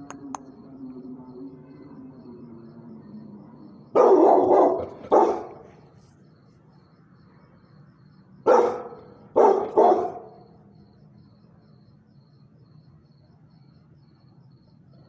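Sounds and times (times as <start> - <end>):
large dog barking: 3.9 - 5.9, 8.4 - 10.5.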